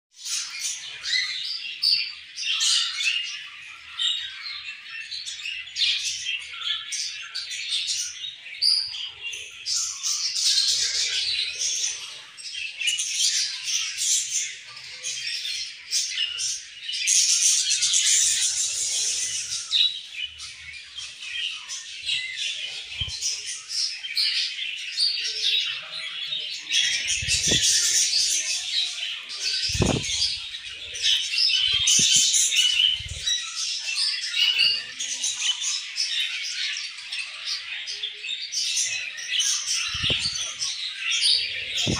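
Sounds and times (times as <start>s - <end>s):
budgerigars chattering and chirping: 0.2s - 41.9s
wing flutter: 27.0s - 28.1s, 29.5s - 30.5s, 39.9s - 40.5s.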